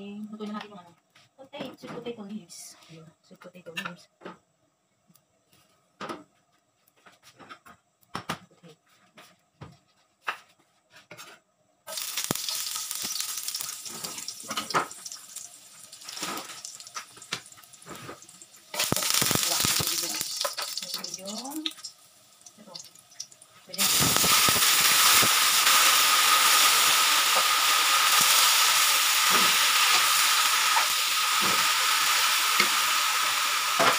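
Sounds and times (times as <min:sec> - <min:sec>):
garlic sizzling in wok: 0:11.8 - 0:33.9.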